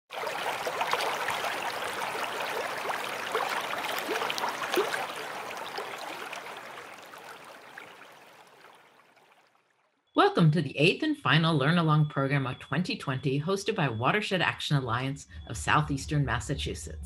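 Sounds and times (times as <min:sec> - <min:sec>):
babbling stream: 0:00.1 - 0:09.6.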